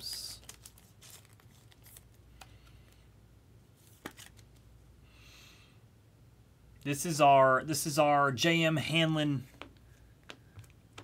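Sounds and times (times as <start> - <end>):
cards and foil wrappers crinkling: 0.0 - 3.1, 3.8 - 4.6.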